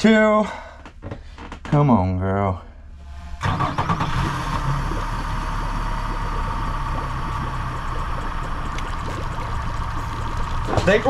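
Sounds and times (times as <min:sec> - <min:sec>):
outboard motor idling: 0:03.0 - 0:11.0.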